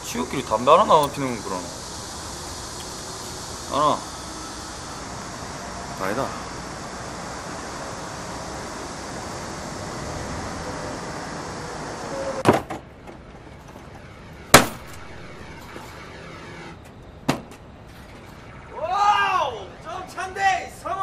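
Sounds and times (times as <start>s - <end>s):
outdoor background noise: 0.0s - 21.0s
loud sharp bang: 14.5s - 17.5s.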